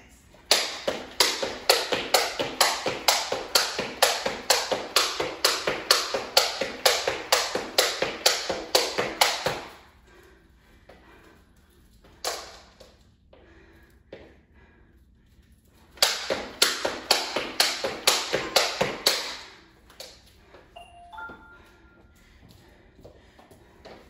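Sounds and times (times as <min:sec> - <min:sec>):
jump rope slapping wooden floor: 0:00.3 - 0:09.9, 0:12.0 - 0:13.5, 0:15.8 - 0:20.6.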